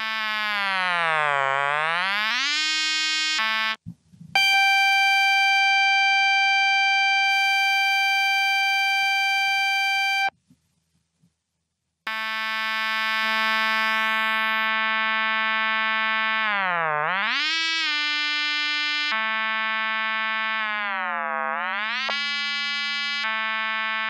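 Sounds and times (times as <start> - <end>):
synthesized trumpet note: 0.0 - 3.8, 12.1 - 24.0
synthesized flute note: 0.0 - 10.3.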